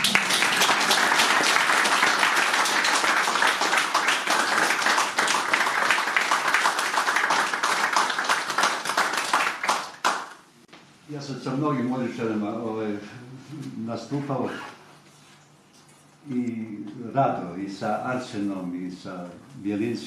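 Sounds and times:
audience clapping: 0:00.0 - 0:10.5.

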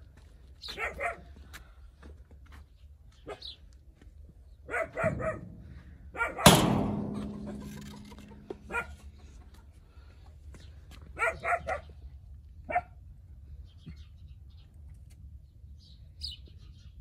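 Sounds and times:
dog barking: 0:00.7 - 0:01.3, 0:04.7 - 0:06.5, 0:08.7 - 0:09.0, 0:11.2 - 0:12.0, 0:12.7 - 0:13.0
metal door clanging: 0:06.4 - 0:08.7.

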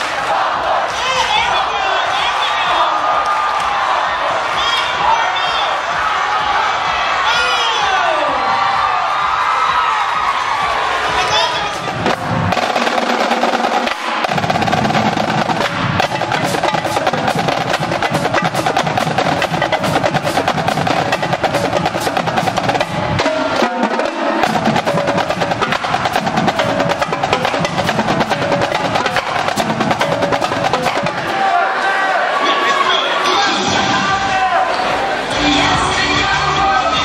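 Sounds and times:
marching drumline playing: 0:00.0 - 0:31.7
bass drums: 0:03.6 - 0:31.5.

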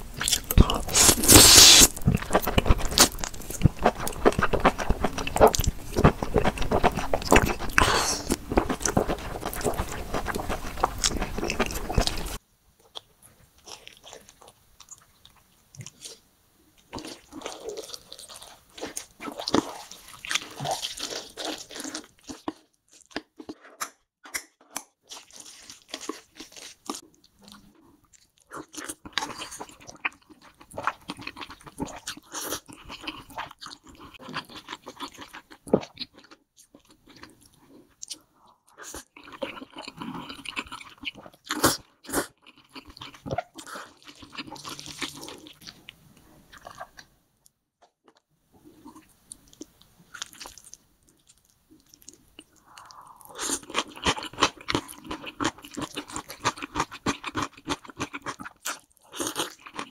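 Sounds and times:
chewing with crisp crunches: 0:00.0 - 0:16.2, 0:16.8 - 0:47.1, 0:47.8 - 0:59.9
slurping noodles: 0:00.6 - 0:03.2.

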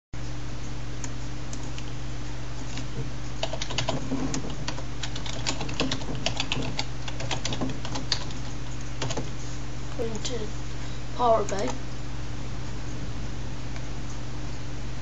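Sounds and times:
low electrical hum: 0:00.2 - 0:15.0
computer keyboard typing: 0:02.6 - 0:09.3.

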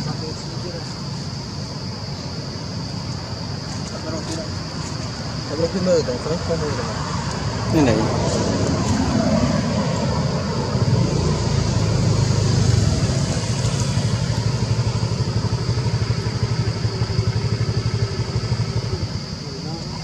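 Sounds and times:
engine running with fast pulse: 0:08.3 - 0:20.0.

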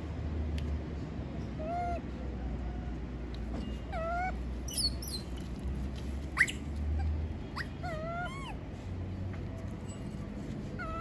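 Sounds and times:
monkey whimper calls: 0:01.6 - 0:02.9, 0:03.9 - 0:05.3, 0:06.3 - 0:08.7, 0:10.8 - 0:11.0.

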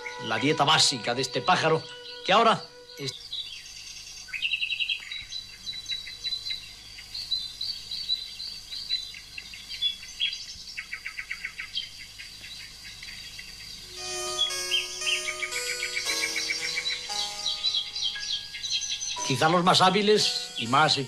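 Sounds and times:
music: 0:00.0 - 0:03.1, 0:13.9 - 0:21.0
high-pitched insect drone: 0:00.0 - 0:03.2, 0:13.8 - 0:21.0
songbird chirping and trilling: 0:00.0 - 0:21.0.

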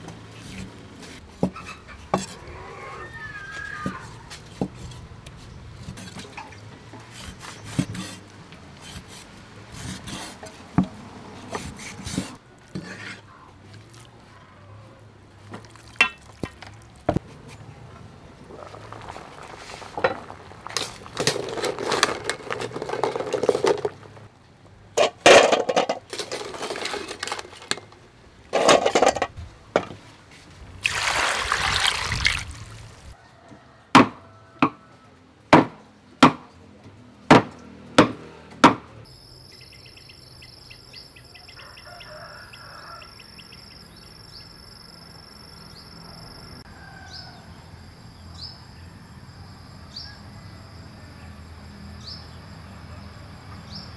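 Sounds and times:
cleaver chopping meat on wood: 0:33.9 - 0:34.8, 0:35.5 - 0:36.5, 0:37.3 - 0:38.9.

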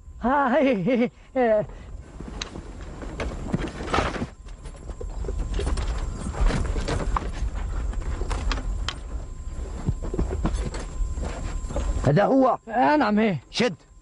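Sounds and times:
knocks and shuffling: 0:01.9 - 0:12.0
hooves clopping on dirt: 0:02.1 - 0:12.0.

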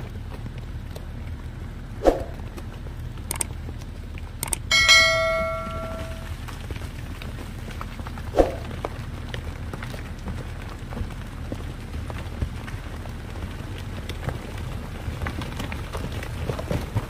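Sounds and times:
low background noise: 0:00.0 - 0:17.0
metallic strike ringing: 0:04.7 - 0:06.3.

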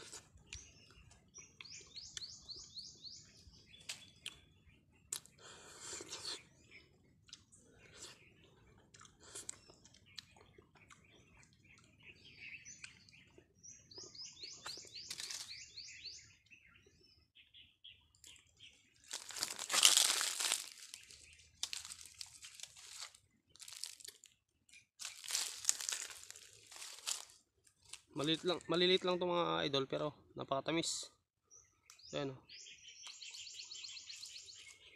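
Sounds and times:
bird chirping: 0:00.0 - 0:34.9
crinkly rustling: 0:19.0 - 0:24.3, 0:25.0 - 0:28.6.

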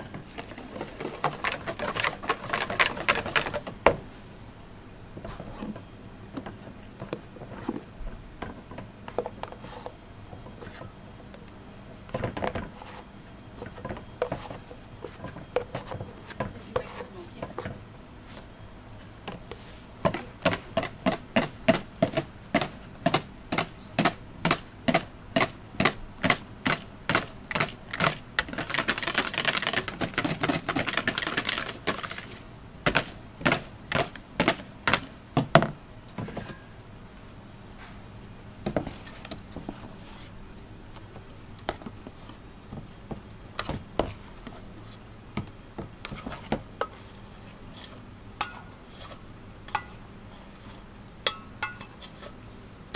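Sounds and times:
whisk knocking plastic bowl: 0:00.4 - 0:03.7, 0:20.0 - 0:32.2.

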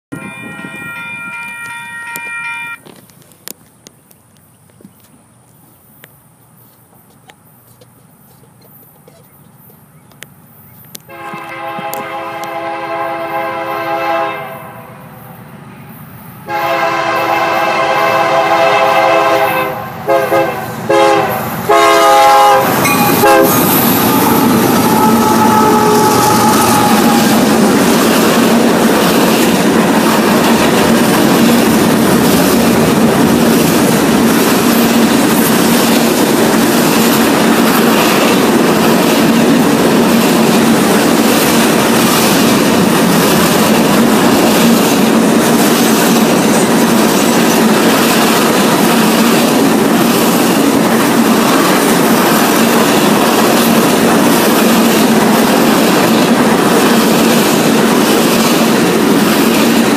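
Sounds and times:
locomotive air horn blasts: 0:00.1 - 0:02.9, 0:11.1 - 0:15.0, 0:16.4 - 0:27.4
locomotive engine drone: 0:14.6 - 0:48.4
freight cars rumbling: 0:19.2 - 0:59.9.

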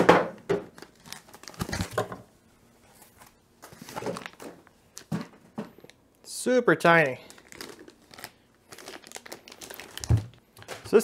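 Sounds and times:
foam packing rustling and knocking: 0:09.9 - 0:11.0.

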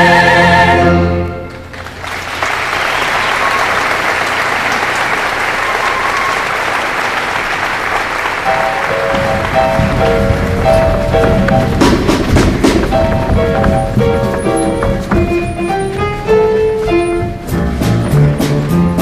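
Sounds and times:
choir singing held chord: 0:00.0 - 0:01.4
audience applauding: 0:01.5 - 0:15.2
instruments playing held notes: 0:08.2 - 0:19.0.

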